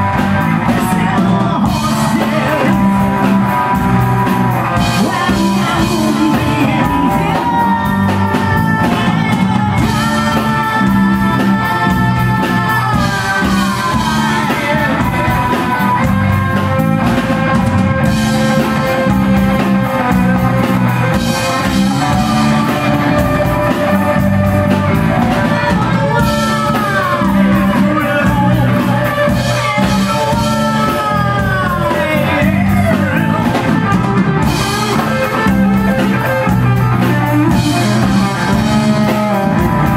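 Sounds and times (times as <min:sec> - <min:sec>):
live rock band playing: 0:00.0 - 0:39.9
man singing: 0:00.0 - 0:39.9.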